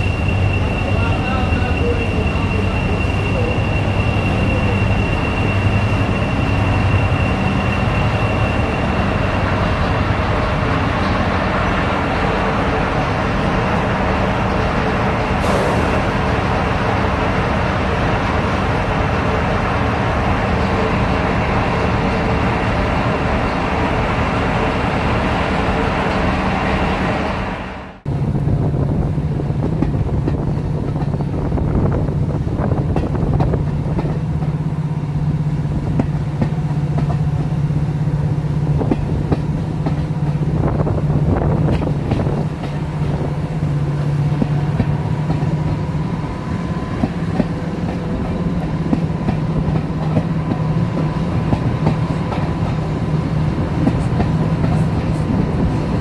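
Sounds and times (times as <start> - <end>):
diesel locomotive engines running: 0.0 - 56.0.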